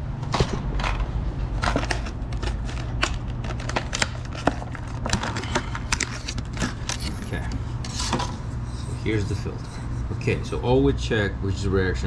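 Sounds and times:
plastic packaging crinkling: 1.7 - 7.4.

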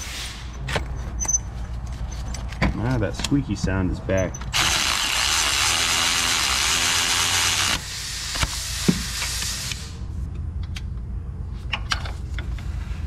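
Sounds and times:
power ratchet hissing and whining: 4.5 - 10.0.

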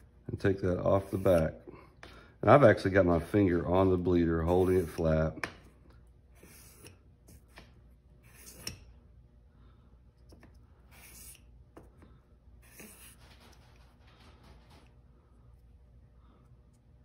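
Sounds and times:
blade scraping on a sheet: 6.4 - 7.6, 8.2 - 8.9.

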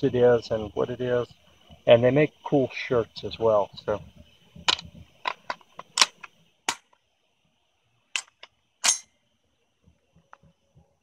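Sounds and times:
sharp metallic clicks and knocks: 4.6 - 7.0, 8.2 - 9.1.

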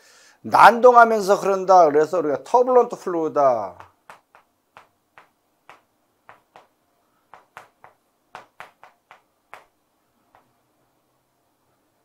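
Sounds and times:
chalk tapping on chalkboard: 3.8 - 6.7, 7.3 - 9.7.

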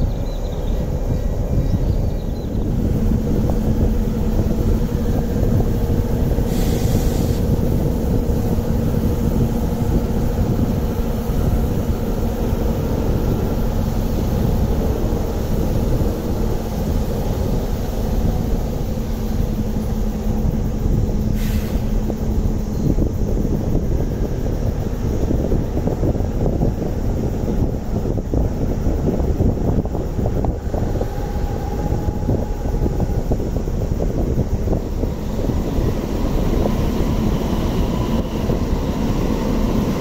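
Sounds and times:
diesel locomotive engine rumbling: 0.0 - 40.0
short hiss: 6.5 - 7.5, 21.3 - 22.0.

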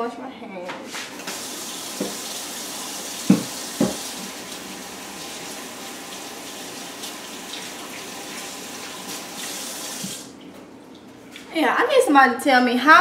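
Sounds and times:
hands washing under water: 0.9 - 11.1
faucet running into sink: 1.2 - 10.4.

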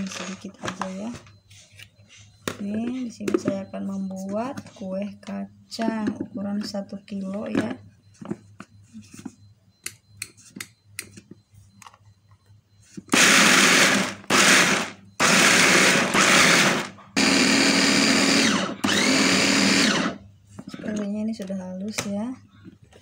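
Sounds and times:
food chopper motor and blades: 13.1 - 20.2.

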